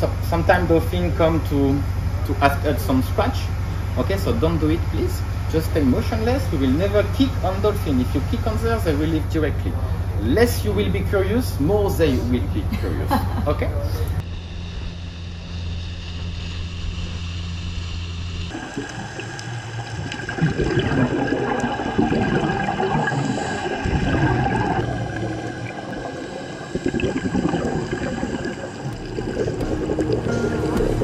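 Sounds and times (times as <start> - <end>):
boat motor humming: 0.0 - 31.0
crackling underwater noise: 16.2 - 31.0
underwater bubbles gurgling: 18.5 - 31.0.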